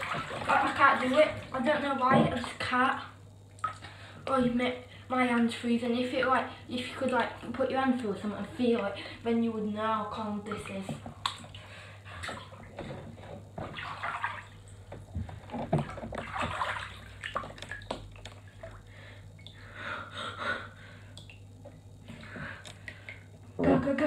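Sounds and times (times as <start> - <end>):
water sloshing in a bathtub: 0.0 - 24.0
water dripping: 3.5 - 4.0, 10.2 - 11.7, 15.8 - 19.7, 21.1 - 23.4.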